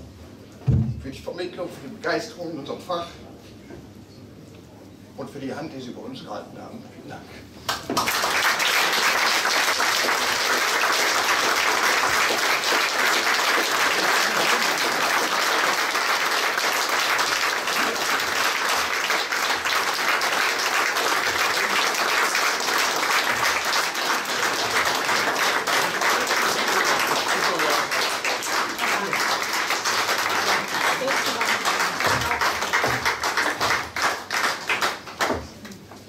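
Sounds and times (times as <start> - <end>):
audience applauding: 7.7 - 35.5.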